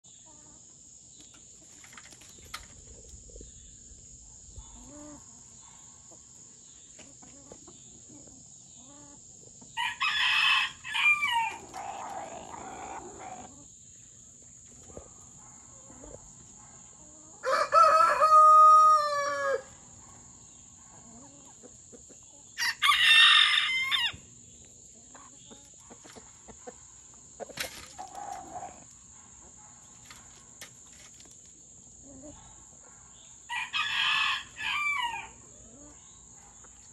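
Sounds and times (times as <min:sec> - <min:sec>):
chickens clucking: 0:04.5 - 0:09.8, 0:11.3 - 0:13.8, 0:14.4 - 0:17.5, 0:18.4 - 0:22.6, 0:24.7 - 0:31.4, 0:35.5 - 0:36.9
rooster crowing: 0:09.8 - 0:12.0, 0:17.4 - 0:19.7, 0:22.6 - 0:24.2, 0:33.5 - 0:35.4
chickens squawking: 0:09.8 - 0:13.7.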